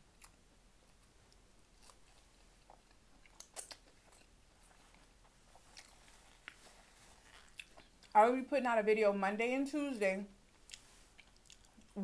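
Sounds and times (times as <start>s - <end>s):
soft wet chewing: 0.1s - 8.2s, 10.4s - 12.0s.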